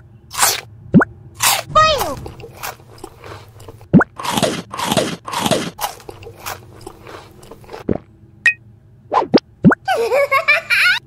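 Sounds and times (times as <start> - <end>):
crunchy chewing: 0.3 - 0.7, 1.4 - 8.1.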